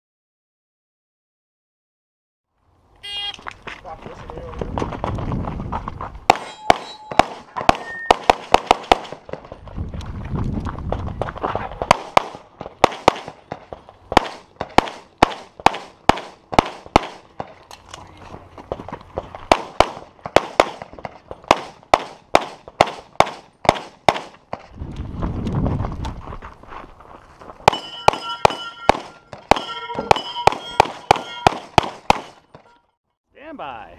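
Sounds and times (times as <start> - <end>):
pistol gunshots: 6.3 - 9.4, 11.8 - 17.3, 19.5 - 24.4, 27.6 - 32.5.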